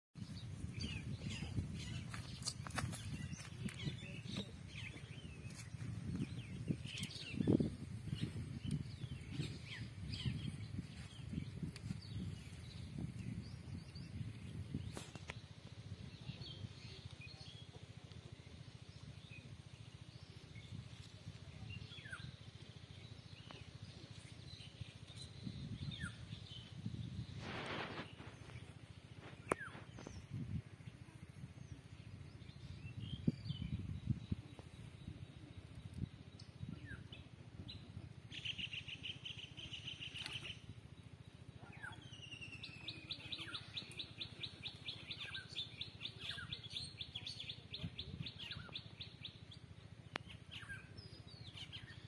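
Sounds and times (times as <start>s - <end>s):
low uneven rumble: 0.2s - 52.0s
rustle: 14.2s - 33.4s, 34.4s - 52.0s
bird chirps: 41.6s - 52.0s.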